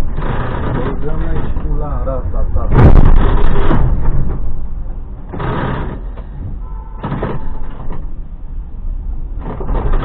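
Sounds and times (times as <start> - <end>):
low vehicle rumble: 0.0 - 10.0
harsh noisy bursts: 5.3 - 6.2.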